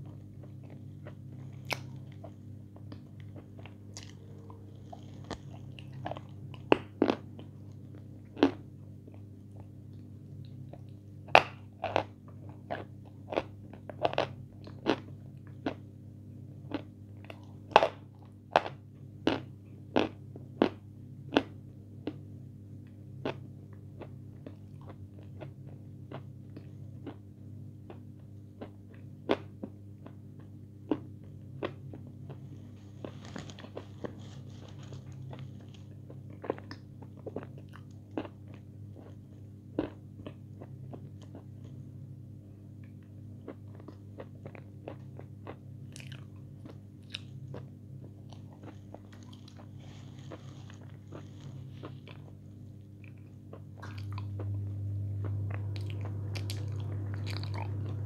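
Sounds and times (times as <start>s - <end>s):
crisp chewing crunches: 0.0s - 15.9s, 27.8s - 41.8s, 42.9s - 58.0s
steady low hum: 0.0s - 58.0s.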